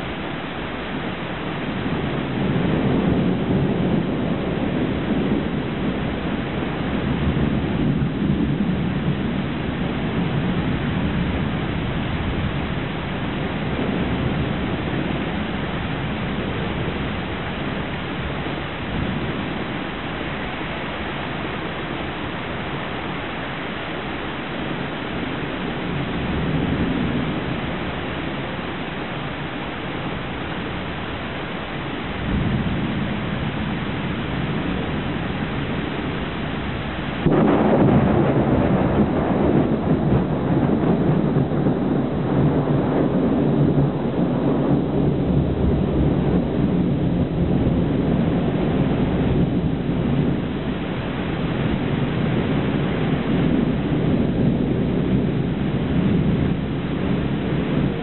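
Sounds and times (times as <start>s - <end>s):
heavy rain: 0.0s - 58.0s
thunder rumbling: 0.0s - 58.0s
sharp thunder clap: 1.8s - 19.9s, 32.2s - 58.0s.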